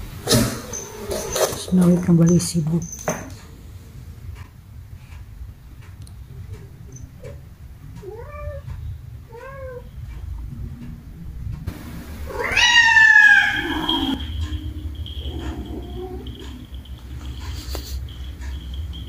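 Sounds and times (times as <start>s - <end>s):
cat meowing: 8.0s - 9.9s, 12.3s - 16.6s.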